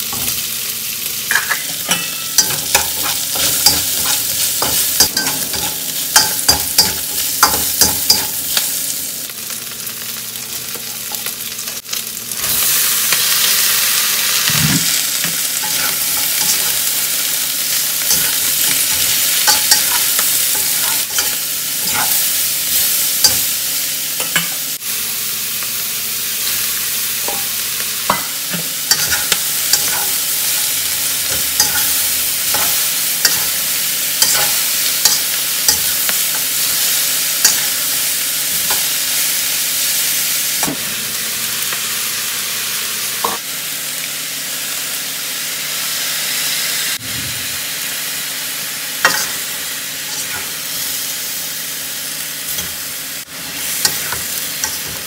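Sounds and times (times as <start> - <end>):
food sizzling in a wok: 0.0 - 55.0
metal spatula scraping wok: 1.3 - 8.3, 15.6 - 17.1, 18.0 - 23.4, 28.1 - 37.8, 50.0 - 50.6.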